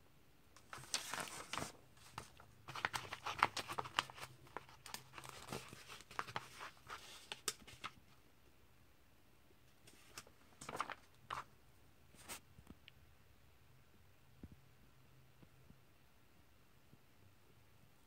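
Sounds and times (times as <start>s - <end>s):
glossy pages rustling: 0.6s - 8.0s, 9.9s - 11.5s.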